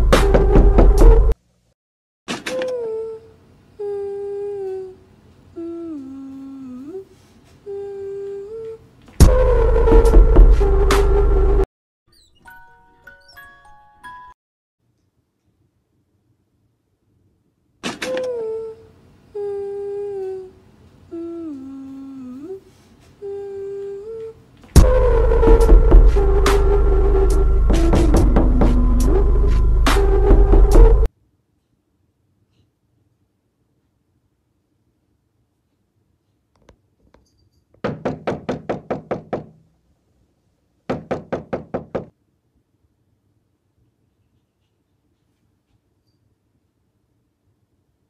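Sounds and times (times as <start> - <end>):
person humming a slow tune: 2.5 - 11.4, 18.0 - 31.1
rapid knocking on a door: 37.8 - 39.6, 40.9 - 42.1.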